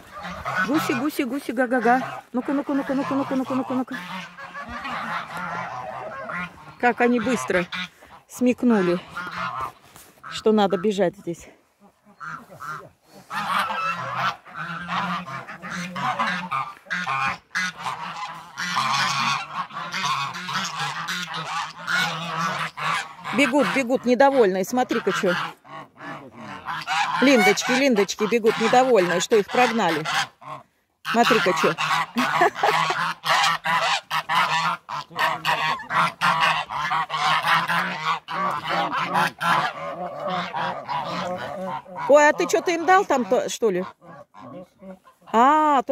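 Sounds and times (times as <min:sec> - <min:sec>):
geese honking: 0:00.0 - 0:45.9.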